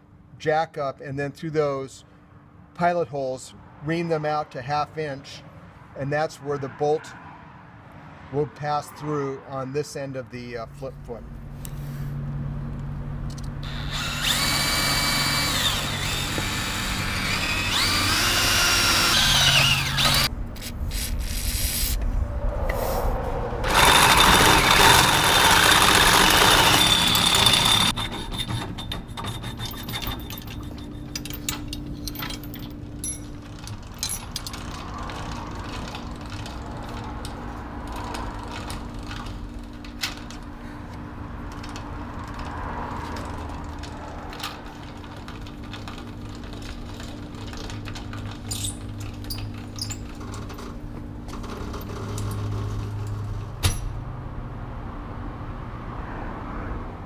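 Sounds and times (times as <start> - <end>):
cordless drill boring steel: 13.6 - 20.3, 23.6 - 30.1.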